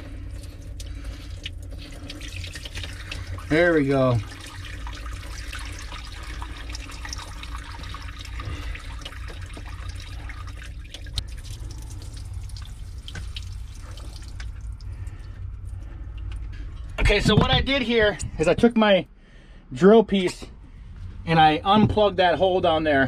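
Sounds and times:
water pouring from engine drain: 0:00.0 - 0:16.5.

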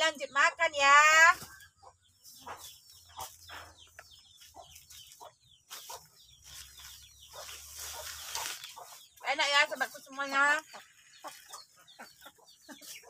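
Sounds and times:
chickens clucking: 0:00.0 - 0:13.0.

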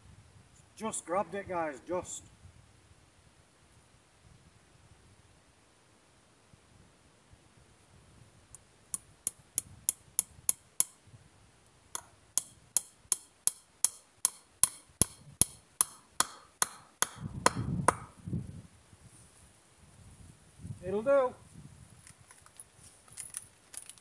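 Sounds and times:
hammer striking nails into wood: 0:09.3 - 0:11.0, 0:12.0 - 0:18.1.

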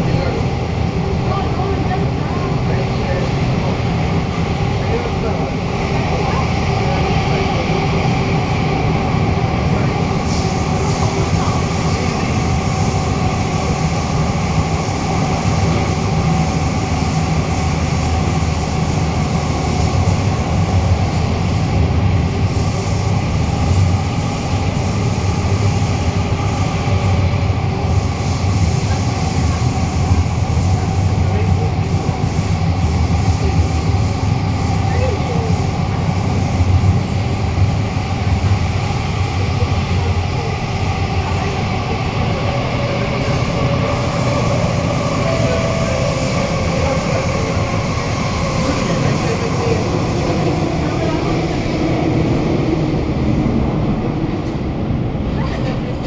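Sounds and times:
metro train wheels rumbling: 0:00.0 - 0:56.0
steady tones: 0:43.7 - 0:49.5.

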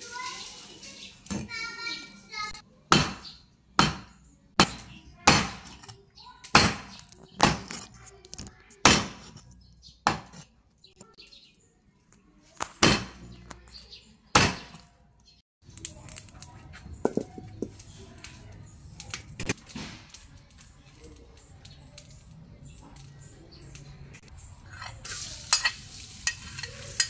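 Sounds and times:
cleaver chopping on wooden board: 0:02.9 - 0:05.8, 0:06.5 - 0:07.8, 0:08.8 - 0:09.4, 0:10.0 - 0:10.4, 0:12.7 - 0:13.2, 0:14.4 - 0:14.8.

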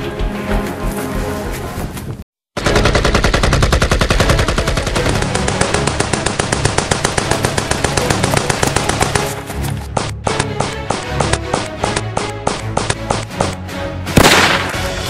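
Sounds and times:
automatic gunfire: 0:02.6 - 0:09.3, 0:14.2 - 0:14.9.

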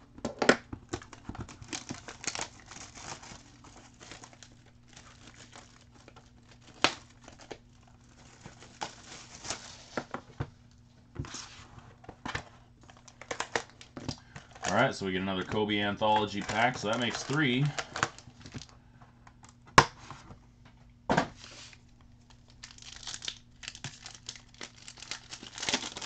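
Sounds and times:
foil packs crinkling and rustling: 0:00.8 - 0:10.4, 0:11.3 - 0:18.7, 0:21.4 - 0:26.0.

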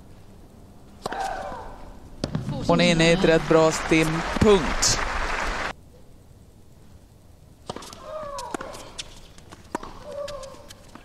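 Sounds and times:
tennis ball bouncing: 0:02.2 - 0:03.1, 0:07.6 - 0:11.0.

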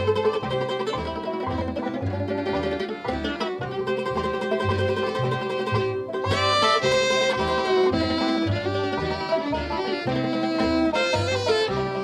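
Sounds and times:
bluegrass band playing: 0:00.0 - 0:12.0
bowed fiddle line sliding up: 0:00.0 - 0:12.0.

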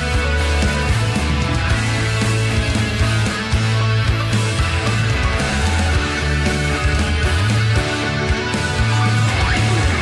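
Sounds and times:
rock music with guitar and bass: 0:00.0 - 0:10.0.

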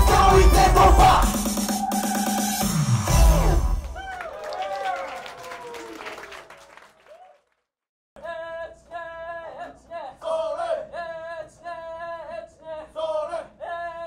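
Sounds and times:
voices chanting a cappella: 0:00.0 - 0:02.2, 0:08.2 - 0:14.0.

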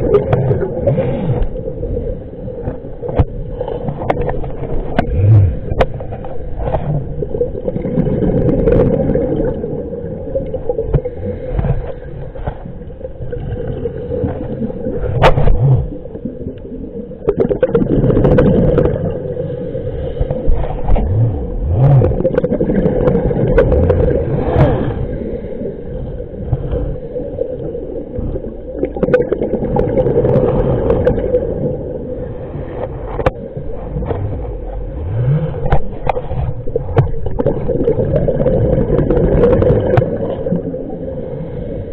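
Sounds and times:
underwater rumble: 0:00.0 - 0:41.9
knocks and scrapes: 0:02.6 - 0:07.2, 0:15.0 - 0:15.9, 0:20.2 - 0:22.2, 0:32.7 - 0:37.4.

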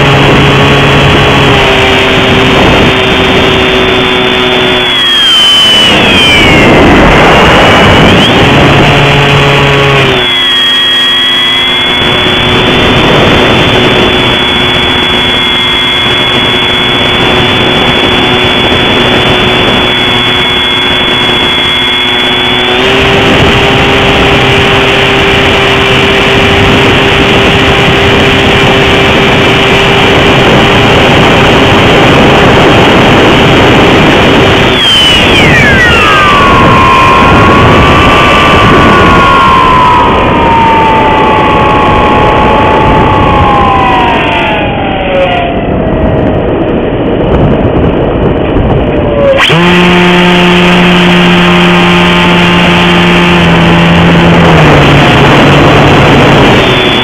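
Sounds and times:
model plane motor and propeller: 0:00.0 - 0:57.0.

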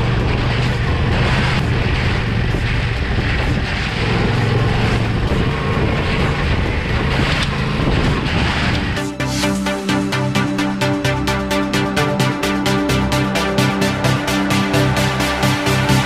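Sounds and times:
wind rush on microphone: 0:00.0 - 0:09.2
low hum: 0:00.0 - 0:16.0.

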